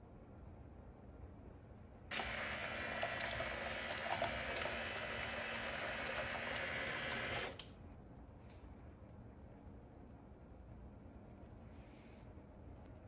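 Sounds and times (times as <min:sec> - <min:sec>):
faint steady hum: 0:00.0 - 0:13.0
water stream splashing into basin: 0:02.1 - 0:07.6.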